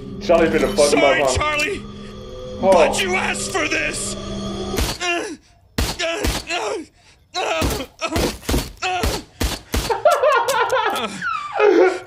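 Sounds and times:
man groaning and crying out: 6.0s - 9.2s.

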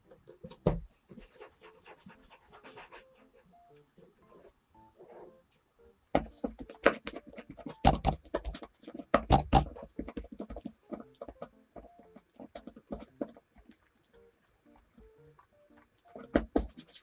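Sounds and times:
dough tapping on work surface: 6.2s - 13.4s, 16.2s - 16.8s.

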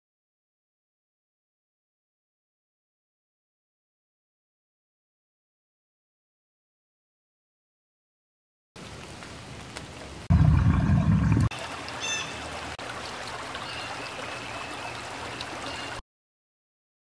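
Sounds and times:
soft water hiss: 8.8s - 10.3s, 11.0s - 16.0s
babbling stream: 8.8s - 16.0s
loud low rumble: 10.3s - 11.5s
bird chirps: 12.0s - 12.4s.

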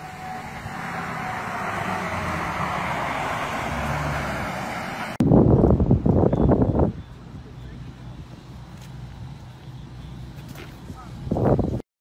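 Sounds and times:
siren steady tone: 0.0s - 3.9s
truck passing: 0.0s - 11.8s.

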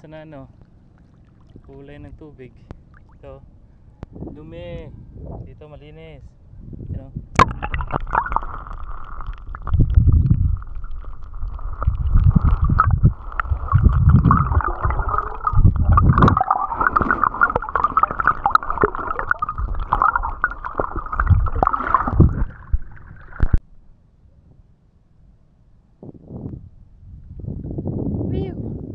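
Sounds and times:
water sloshing and gurgling: 0.4s - 3.8s, 7.4s - 23.6s
low rumbling water surges: 7.4s - 23.6s.

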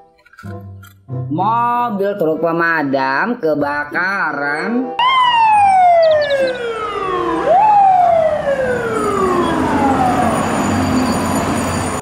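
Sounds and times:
fire truck siren wailing: 5.0s - 12.0s.

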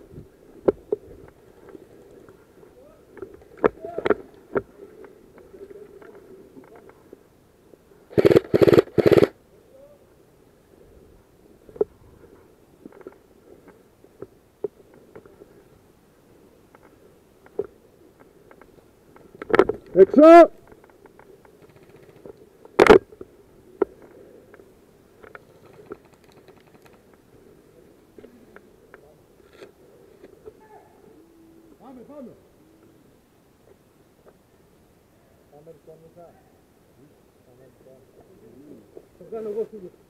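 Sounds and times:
airsoft rifle bursts: 8.1s - 9.4s.

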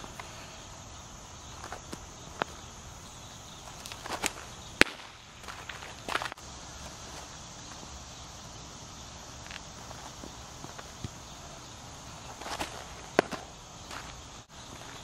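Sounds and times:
footsteps on dirt: 3.6s - 7.9s, 12.2s - 15.0s
baseball hitting catcher's mitt: 12.5s - 13.5s.

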